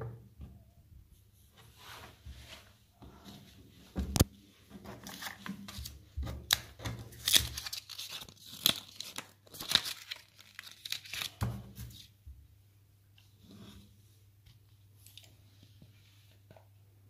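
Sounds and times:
plastic packaging crinkling: 0:06.5 - 0:11.4.

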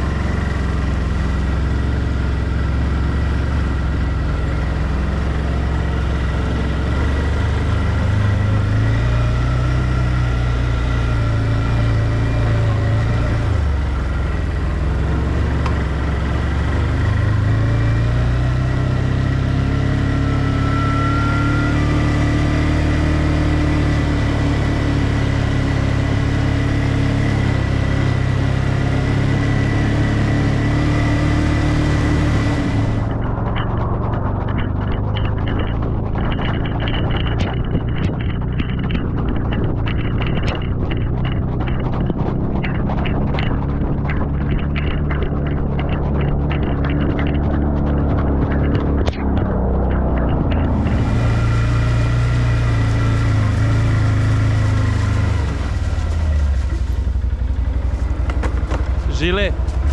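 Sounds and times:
quad engine running: 0:00.0 - 0:59.9
steady high whine: 0:32.2 - 0:41.4, 0:42.6 - 0:59.9.

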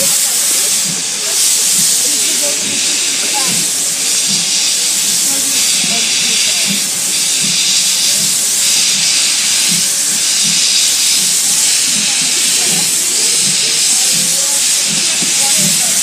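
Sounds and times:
steam locomotive hissing: 0:00.0 - 0:16.0.

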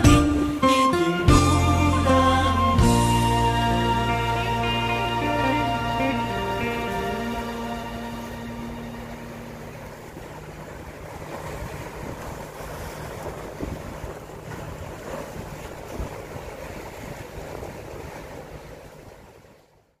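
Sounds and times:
boat engine humming: 0:00.0 - 0:19.8
choppy water splashing: 0:04.1 - 0:20.0
wind buffeting the microphone: 0:09.9 - 0:19.6.

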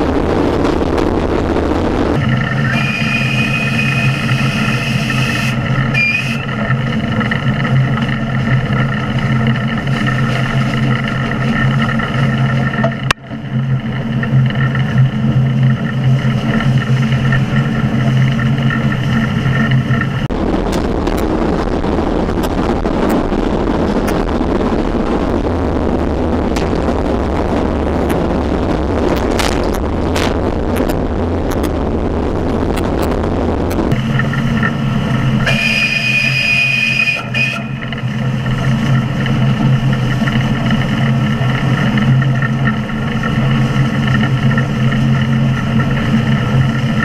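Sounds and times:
carriage rumbling along track: 0:00.0 - 0:47.0
steam locomotive hum: 0:00.0 - 0:47.0.

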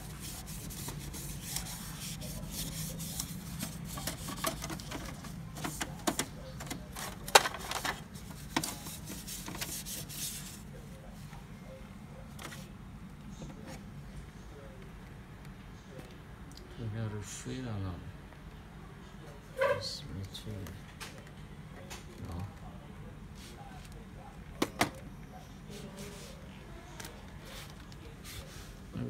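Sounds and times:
plastic rubbing and scraping: 0:00.0 - 0:10.7.

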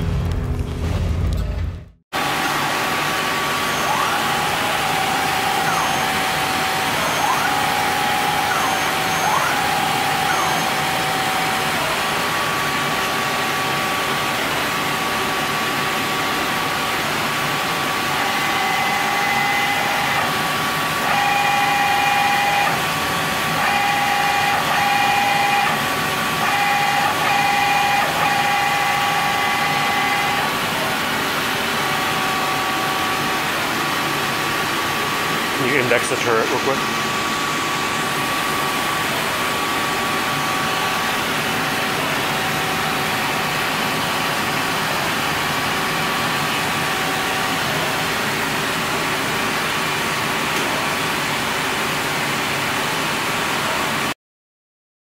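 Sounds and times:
machine hum with motor whine: 0:00.0 - 0:54.2
whines gliding in pitch: 0:02.2 - 0:12.1, 0:23.5 - 0:34.2.

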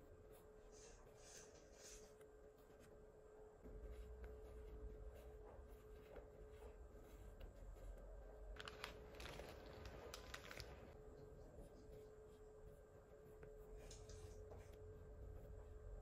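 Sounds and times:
faint steady hum: 0:00.0 - 0:16.0
paper stickers flipped by hand: 0:08.6 - 0:10.9
sharp paper crackles: 0:08.6 - 0:11.0.

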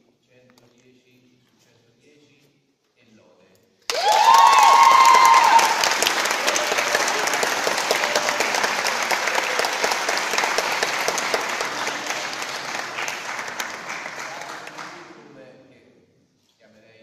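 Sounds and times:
crowd applauding: 0:03.9 - 0:15.2.

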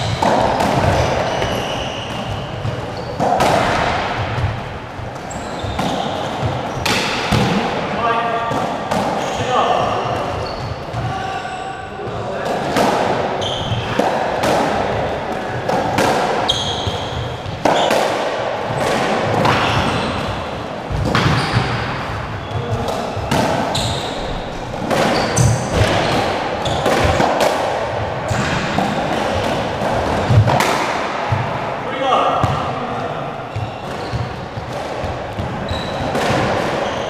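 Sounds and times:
shoes squeaking on wooden floor: 0:00.0 - 0:03.4, 0:04.4 - 0:06.9, 0:10.2 - 0:11.8, 0:13.4 - 0:14.0, 0:16.4 - 0:17.9, 0:19.6 - 0:21.8, 0:22.4 - 0:27.2, 0:33.4 - 0:37.0
squash ball hitting rackets and walls: 0:00.0 - 0:11.3, 0:12.0 - 0:37.0.

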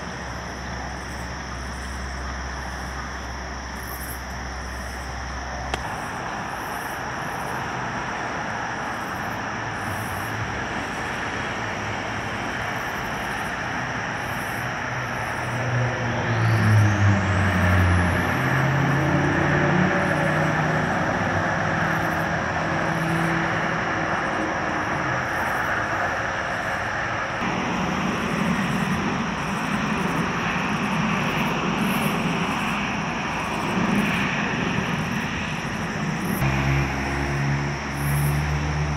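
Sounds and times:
large engine rumbling: 0:14.8 - 0:38.9.

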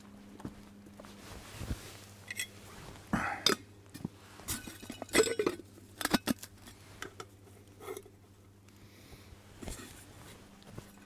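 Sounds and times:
metal cookware clinking: 0:04.5 - 0:06.4.

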